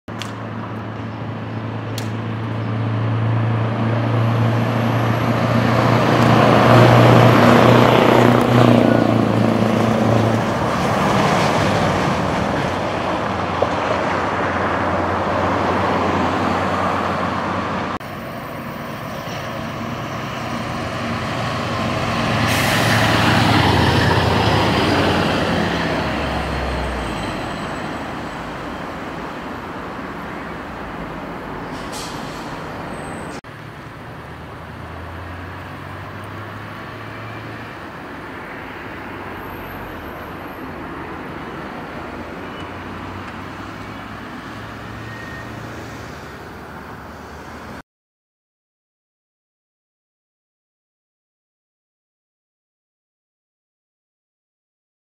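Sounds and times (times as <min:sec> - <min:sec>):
diesel trucks driving past: 0:00.1 - 0:47.8
short sharp hiss: 0:31.7 - 0:32.7.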